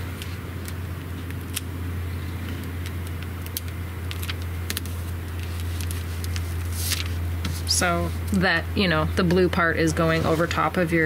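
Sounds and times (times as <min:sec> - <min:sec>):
steady low hum: 0:00.0 - 0:11.0
membrane clicking and crinkling: 0:00.1 - 0:07.2.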